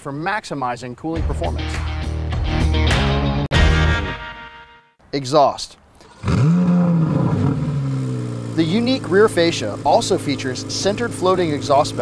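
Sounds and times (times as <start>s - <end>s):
music chord: 3.5s - 5.0s.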